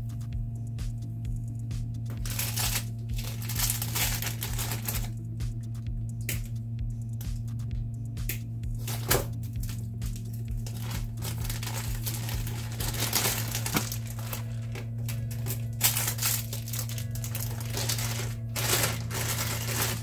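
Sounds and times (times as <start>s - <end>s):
steady low hum: 0.0s - 20.0s
plastic packaging crinkling: 2.2s - 5.2s, 10.6s - 20.0s.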